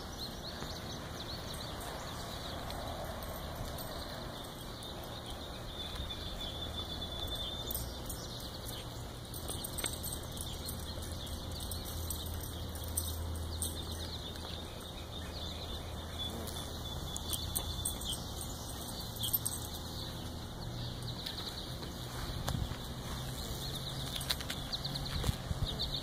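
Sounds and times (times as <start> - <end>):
low buzz of beetle wings: 16.3 - 17.7.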